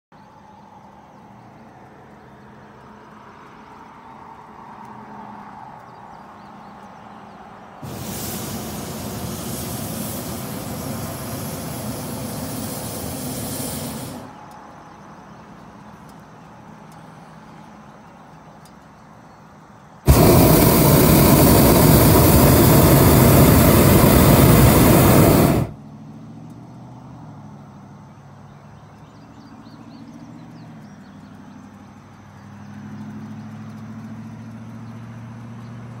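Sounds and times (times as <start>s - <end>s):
propane burner blasts: 7.8s - 14.5s, 20.0s - 25.8s.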